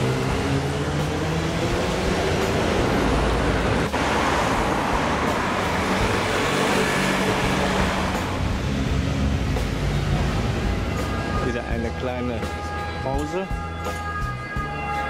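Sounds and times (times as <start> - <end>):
cars driving past: 0.0 - 11.8.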